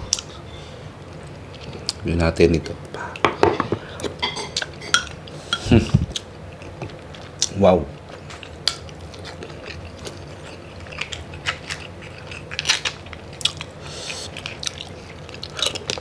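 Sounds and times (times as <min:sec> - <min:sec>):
chewing and mouth smacks: 0:06.1 - 0:16.0.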